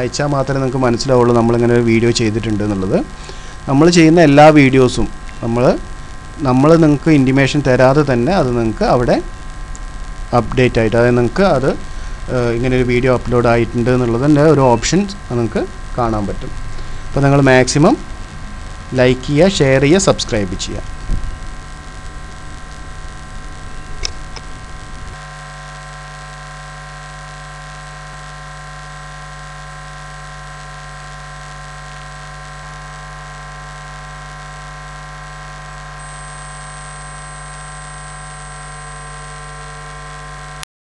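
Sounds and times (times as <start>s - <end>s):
electrical mains hum: 0.0s - 40.6s
click: 24.0s - 24.5s.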